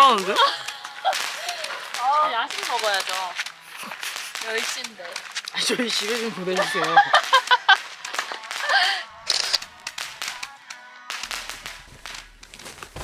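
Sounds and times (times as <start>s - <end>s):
woman laughing: 0.2s - 1.9s, 6.6s - 9.2s
music with clicky percussion: 2.0s - 12.8s.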